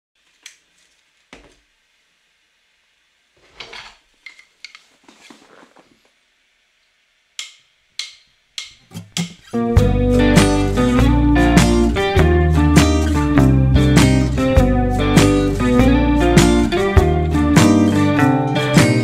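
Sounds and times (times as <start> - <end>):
rustling: 3.4 - 6.2
sharp clicks and taps: 7.4 - 9.5.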